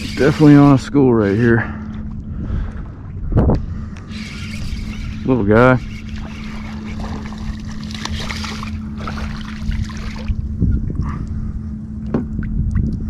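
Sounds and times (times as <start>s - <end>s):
steady low hum: 0.0s - 13.0s
fish splashing at water surface: 6.0s - 10.4s.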